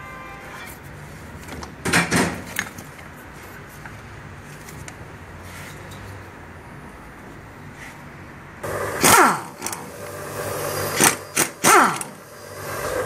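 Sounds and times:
tools clattering and clicking: 1.4s - 3.2s.

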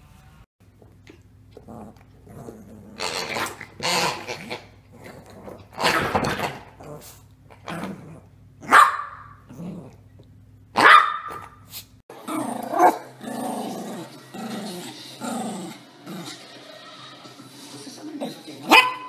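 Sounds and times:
dogs growling: 1.5s - 8.7s, 9.4s - 10.3s, 12.1s - 16.6s
small dogs barking: 8.6s - 9.5s, 10.8s - 11.6s, 12.7s - 13.2s, 18.7s - 19.0s.

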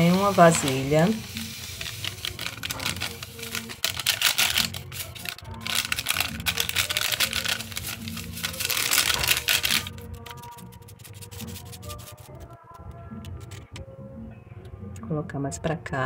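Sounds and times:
soft background music: 0.0s - 16.0s
packet crinkling and rattling: 0.2s - 12.4s.

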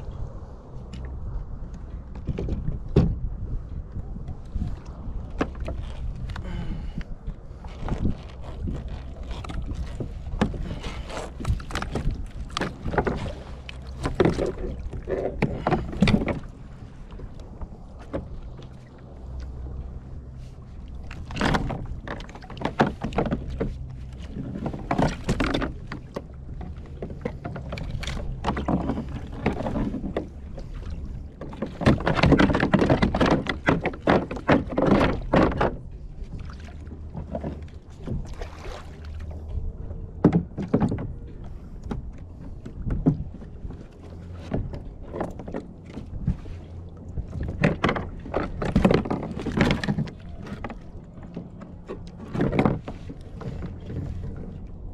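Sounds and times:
low rumble: 0.0s - 31.4s
water splashing against hull: 0.0s - 54.9s.

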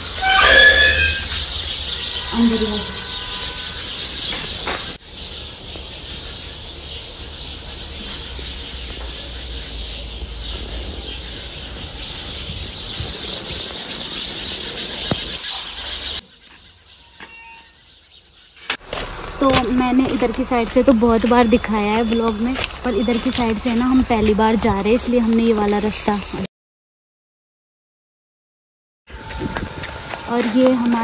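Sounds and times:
chorus of birds chirping: 0.0s - 26.5s, 29.1s - 31.0s.

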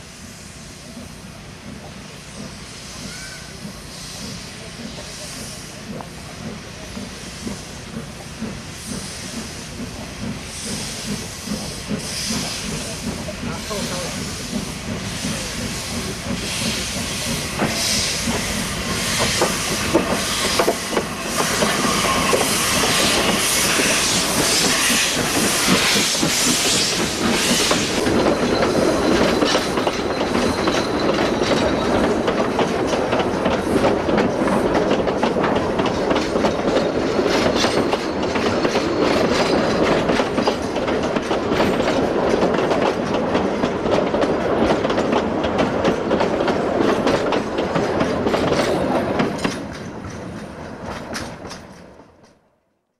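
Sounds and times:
steam hissing: 0.0s - 34.8s
steam locomotive exhaust chuffs: 0.0s - 49.6s
train coaches rolling past: 0.0s - 52.6s
wheels clicking over rail joints: 24.2s - 52.5s.

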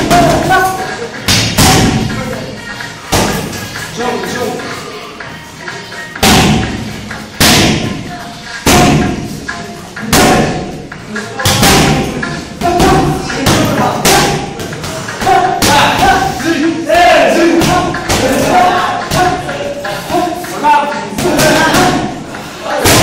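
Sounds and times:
boxing gloves hitting punching pads: 6.2s - 6.8s
voices: 7.1s - 23.0s.

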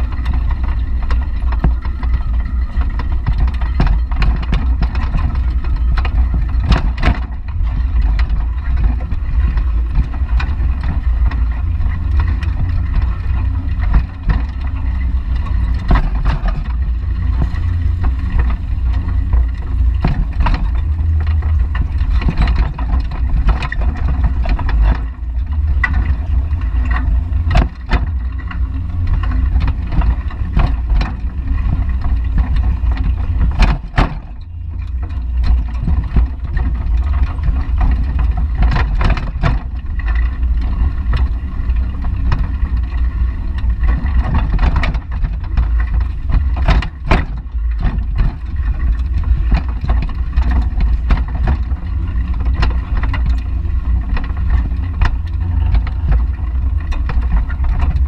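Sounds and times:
bicycle basket rattling: 0.0s - 58.0s
wind buffeting microphone: 0.0s - 58.0s.

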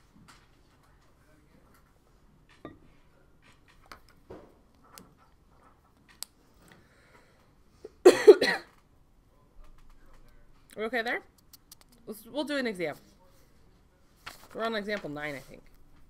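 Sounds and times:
person coughing: 8.0s - 8.7s.

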